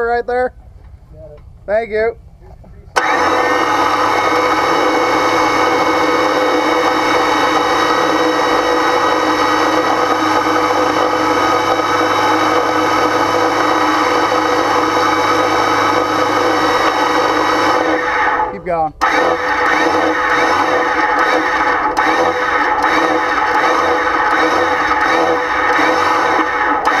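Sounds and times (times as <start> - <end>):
electric winch motor whine: 3.0 - 27.0.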